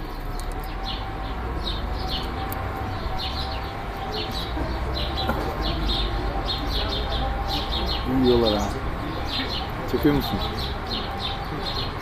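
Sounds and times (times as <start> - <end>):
sparrows chirping: 0.0 - 12.0.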